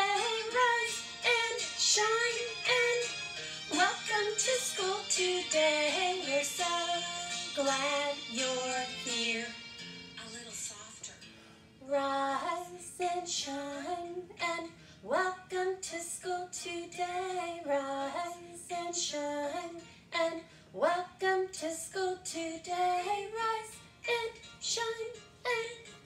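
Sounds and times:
woman singing children's song: 0:00.0 - 0:09.6, 0:11.8 - 0:26.0
backing music: 0:00.0 - 0:11.2.

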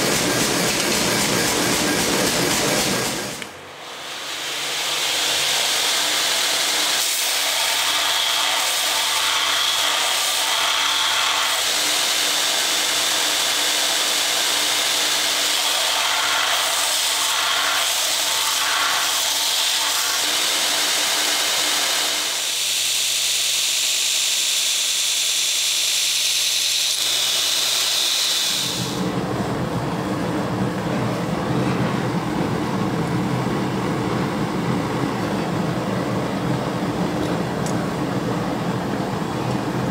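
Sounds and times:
belt grinder grinding knife blade: 0:21.4 - 0:29.0
gas forge roaring: 0:26.8 - 0:39.9.

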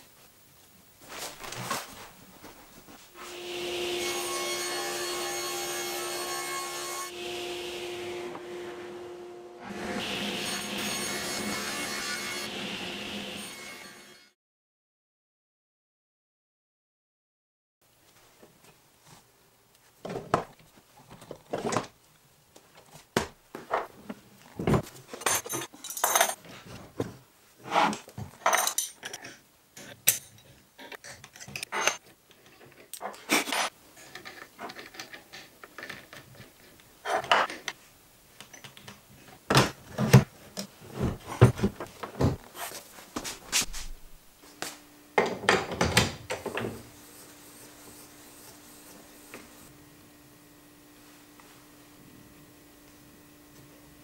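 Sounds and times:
metal tools clinking and knocking: 0:25.1 - 0:26.4, 0:28.4 - 0:30.6.

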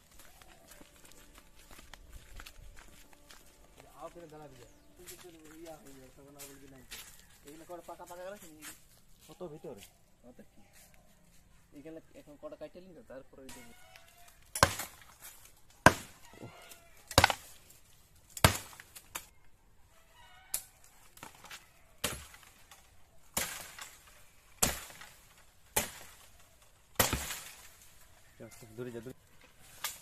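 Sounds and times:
blade chopping bamboo: 0:14.5 - 0:16.2, 0:17.1 - 0:17.6, 0:18.4 - 0:19.3, 0:22.0 - 0:22.6, 0:23.3 - 0:24.0, 0:24.6 - 0:26.2, 0:27.0 - 0:27.6.

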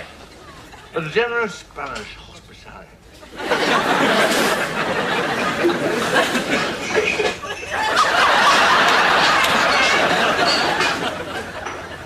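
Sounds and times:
crowd laughing: 0:03.2 - 0:12.0.

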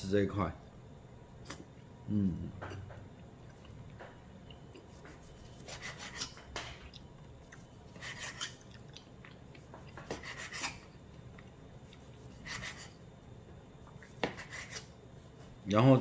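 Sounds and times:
knife sawing through steak: 0:05.3 - 0:06.4, 0:07.9 - 0:08.5, 0:10.1 - 0:10.8, 0:12.2 - 0:13.0, 0:14.4 - 0:14.9.

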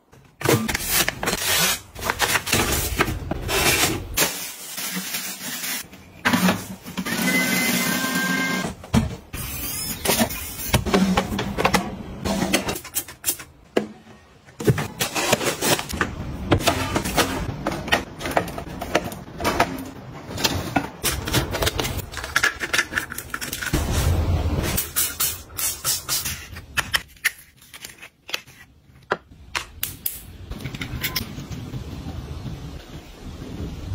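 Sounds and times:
clicks taps and plastic rustles: 0:15.8 - 0:23.7.

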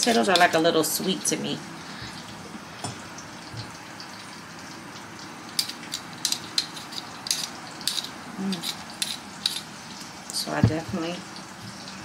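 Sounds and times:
fish frying in a pan: 0:00.0 - 0:12.0
knife scraping potato skin: 0:05.6 - 0:09.7.

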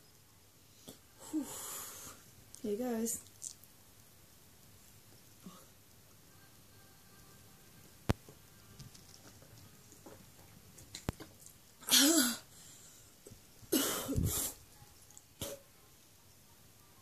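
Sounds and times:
woman coughing and gasping: 0:13.7 - 0:14.5.

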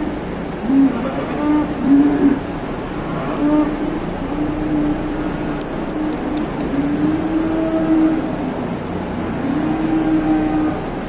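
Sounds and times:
barn fans humming: 0:00.0 - 0:11.0
cattle mooing: 0:06.7 - 0:08.4, 0:09.4 - 0:10.9.

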